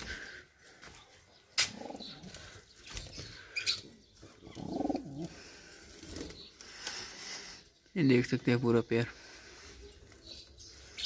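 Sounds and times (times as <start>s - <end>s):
pigeons cooing: 0.0s - 7.6s.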